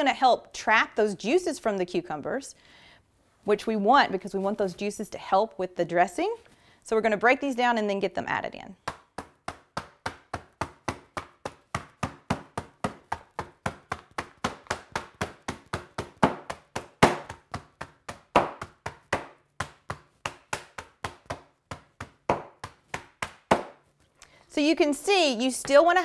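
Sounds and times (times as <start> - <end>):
meat mallet thuds on cutting board: 8.9 - 23.8.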